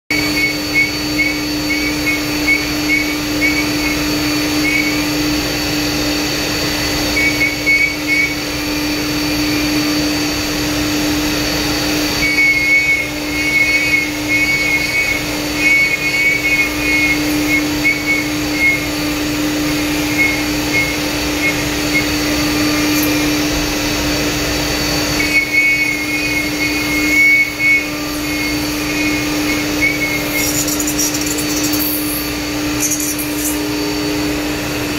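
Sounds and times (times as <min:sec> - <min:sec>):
router spindle and vacuum running: 0:00.1 - 0:34.9
rapid high cutting warble: 0:25.8 - 0:33.8.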